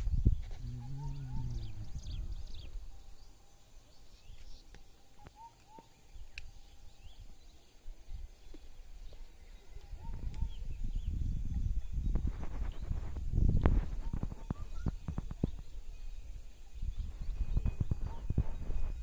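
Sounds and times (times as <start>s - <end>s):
small birds chirping: 0.0s - 19.0s
low rumble: 0.1s - 3.0s.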